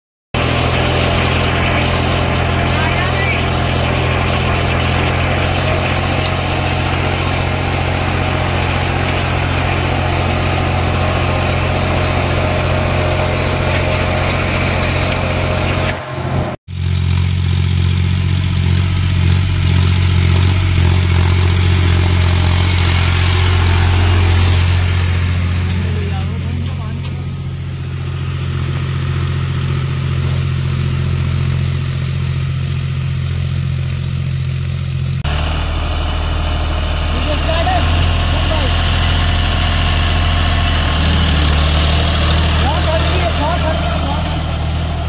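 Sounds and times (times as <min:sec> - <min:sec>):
tractor diesel engine running: 0:00.3 - 0:45.0.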